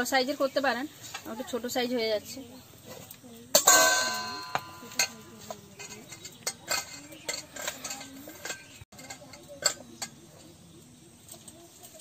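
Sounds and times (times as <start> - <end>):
steel bowls and utensils clinking: 0.0 - 12.0
struck steel pot ringing: 3.5 - 10.2.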